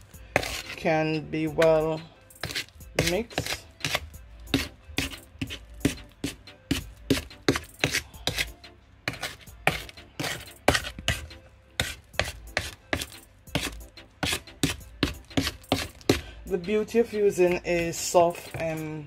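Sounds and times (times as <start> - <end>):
wooden spoon scraping a bowl: 0.0 - 1.0, 1.6 - 16.3.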